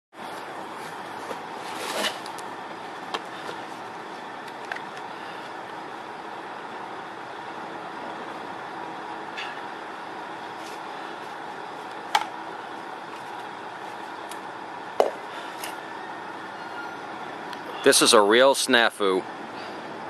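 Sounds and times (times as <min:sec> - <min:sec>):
distant traffic hum: 0:00.2 - 0:20.0
handling rustle and clicks: 0:13.0 - 0:14.4.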